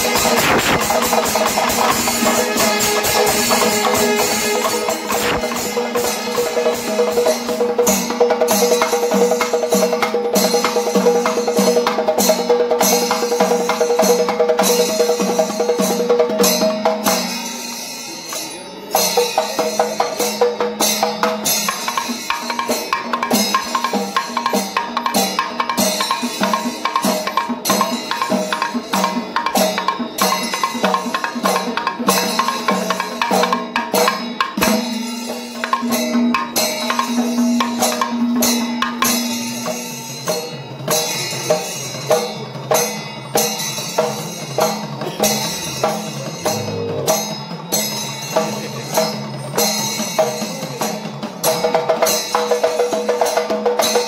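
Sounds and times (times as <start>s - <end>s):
cymbals: 0.0s - 54.0s
drums playing fast rhythm: 0.0s - 54.0s.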